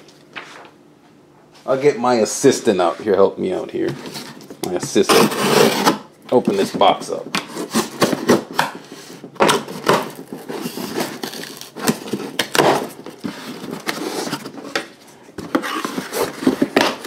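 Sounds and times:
cardboard box tearing and rustling: 5.0 - 6.0, 9.4 - 14.8, 15.4 - 17.0.

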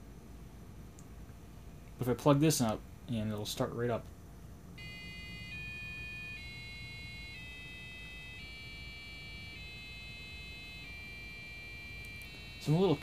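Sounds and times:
shrill buzzer beeps: 4.8 - 13.0.

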